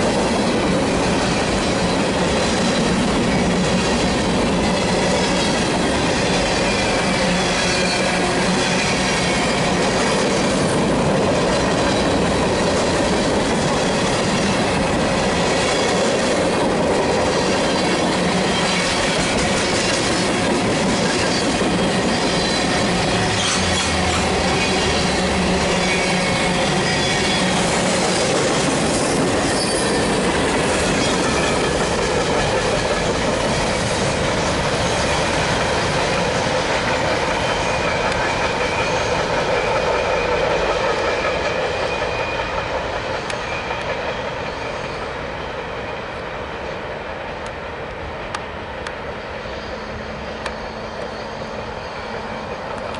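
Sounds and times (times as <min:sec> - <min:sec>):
train wheels rumbling on rails: 0:00.0 - 0:52.9
high wheel squeal: 0:04.7 - 0:16.4, 0:17.3 - 0:32.0, 0:36.1 - 0:45.6, 0:49.1 - 0:52.9.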